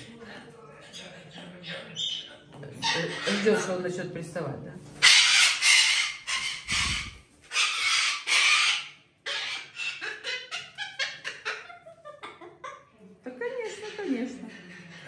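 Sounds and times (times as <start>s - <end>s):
parrots chattering: 0.4s - 4.0s, 5.0s - 15.0s
parrots screeching: 1.7s - 3.7s, 5.0s - 12.4s.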